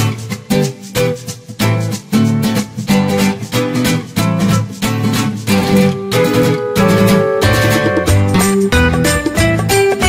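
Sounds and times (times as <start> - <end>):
guitar background music: 0.0 - 10.0.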